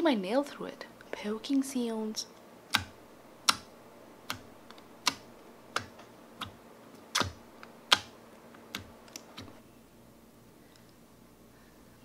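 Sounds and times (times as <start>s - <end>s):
sticky clicks of poked slime: 4.3s - 8.1s.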